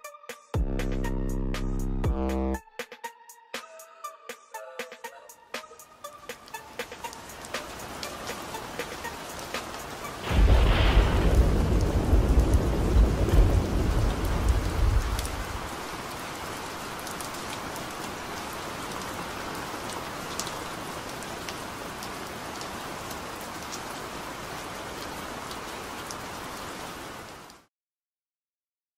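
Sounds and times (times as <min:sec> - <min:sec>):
steady rain: 0:05.6 - 0:27.7
thunder rumble: 0:10.2 - 0:15.7.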